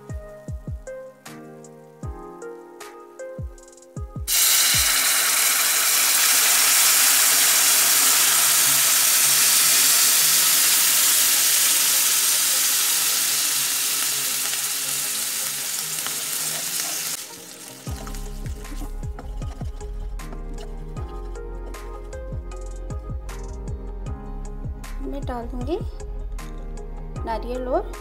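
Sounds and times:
background music: 0:00.0 - 0:28.0
syrup hissing and sizzling in pan: 0:04.3 - 0:21.3.

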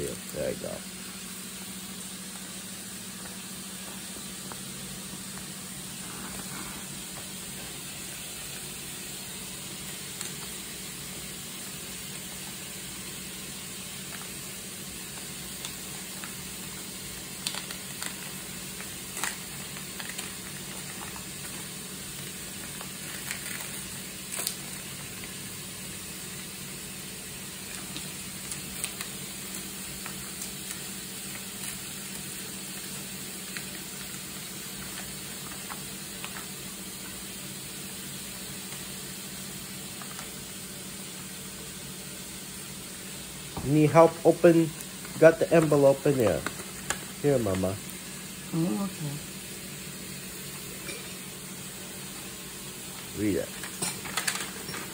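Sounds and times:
background hiss with low hum: 0:00.0 - 0:54.9
paper and tape crackling: 0:09.7 - 0:10.6, 0:15.0 - 0:25.4, 0:27.6 - 0:37.2, 0:39.9 - 0:40.4, 0:43.7 - 0:47.9, 0:52.8 - 0:54.9.

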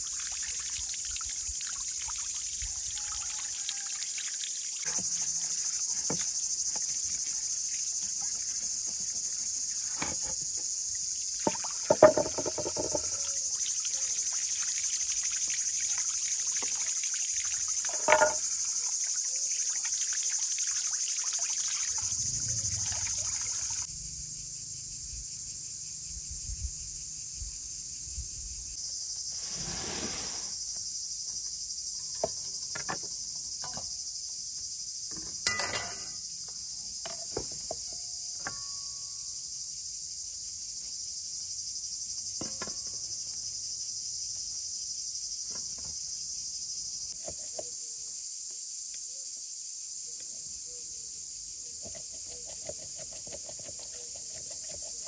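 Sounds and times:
hose water running and splashing: 0:00.0 - 0:23.9, 0:29.3 - 0:30.6
insects shrilling: 0:00.0 - 0:25.7, 0:28.7 - 0:31.7
knocks: 0:11.9 - 0:13.1
low rumble: 0:22.0 - 0:24.2.

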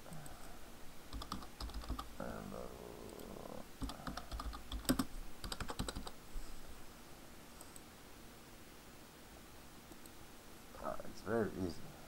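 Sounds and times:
keyboard typing: 0:01.1 - 0:02.1, 0:03.1 - 0:06.2.

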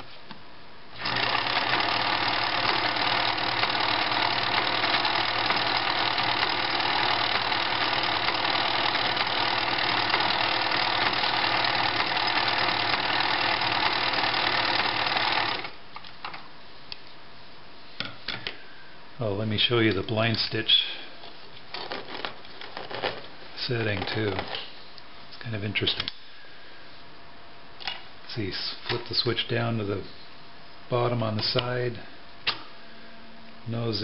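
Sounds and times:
sewing machine running: 0:01.0 - 0:15.8.

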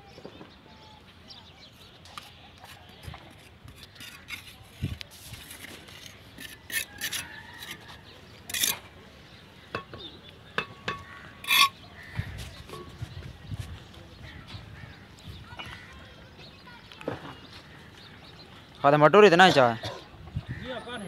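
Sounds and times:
trowel scraping mortar: 0:02.1 - 0:07.9, 0:08.5 - 0:08.9, 0:11.4 - 0:11.8
trowel tapping bricks: 0:10.6 - 0:11.7.

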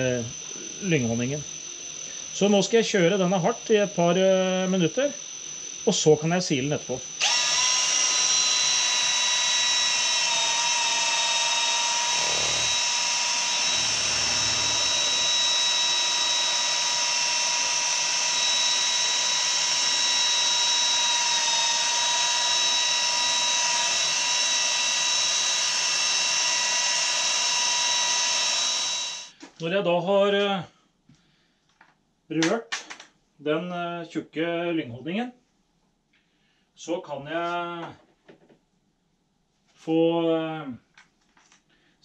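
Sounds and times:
cordless drill whining: 0:07.0 - 0:29.4.

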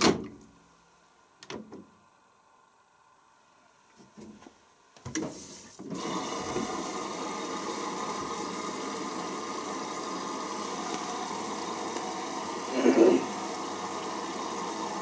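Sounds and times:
water filling through inlet valve: 0:05.9 - 0:15.0.

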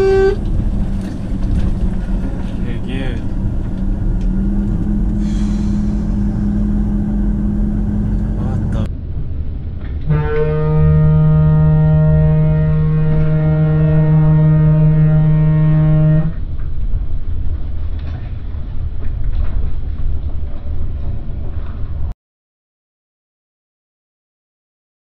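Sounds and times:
truck horn blast: 0:00.0 - 0:00.5, 0:10.0 - 0:16.4
road noise inside cab: 0:00.0 - 0:22.1
truck engine drone: 0:00.0 - 0:22.1.

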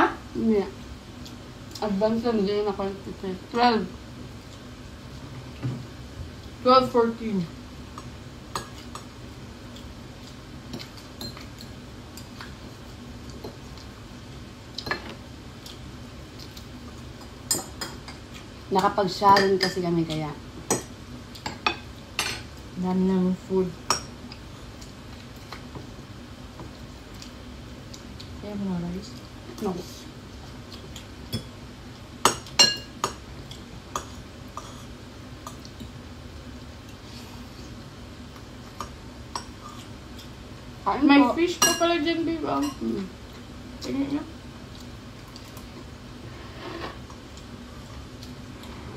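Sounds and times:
spoons and forks clinking on bowls: 0:32.3 - 0:33.2, 0:41.6 - 0:41.9.

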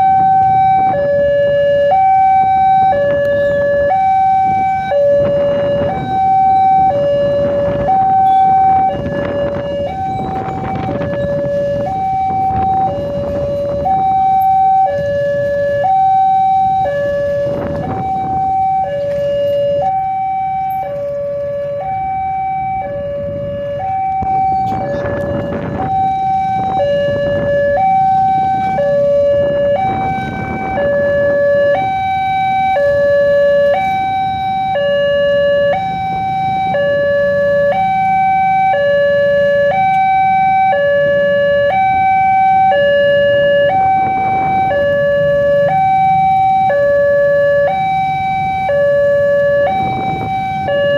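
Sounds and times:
road traffic idling: 0:00.0 - 0:50.9
two-tone crossing alarm: 0:00.0 - 0:50.9.

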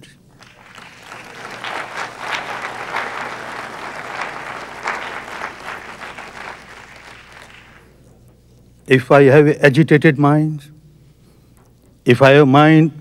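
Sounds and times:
audience applauding: 0:00.3 - 0:08.0.

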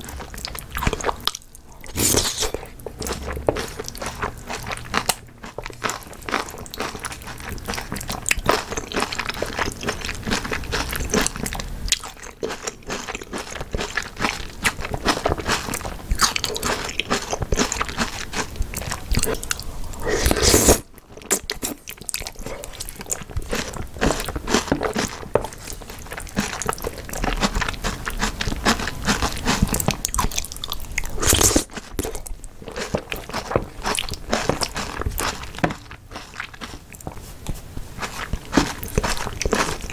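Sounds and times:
wet chewing and biting: 0:00.0 - 0:39.9
noodle slurps: 0:01.9 - 0:02.7, 0:19.1 - 0:21.8.

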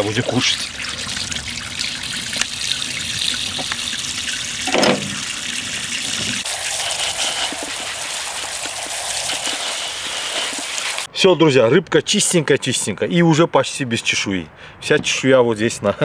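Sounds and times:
tap water running into sink: 0:00.0 - 0:11.1.

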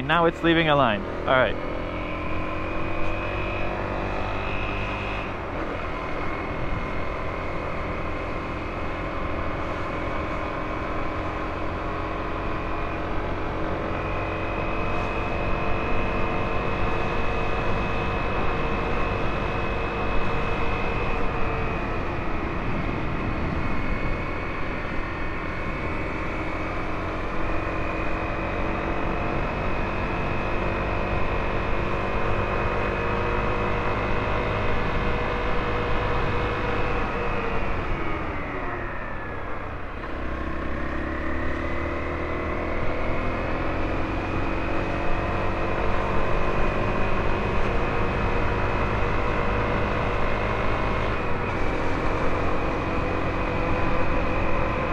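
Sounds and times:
wind rushing over microphone: 0:20.3 - 0:31.9.

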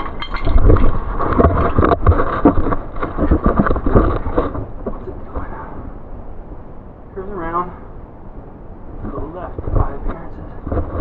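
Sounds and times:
scraping and knocking on stone: 0:00.0 - 0:05.5.

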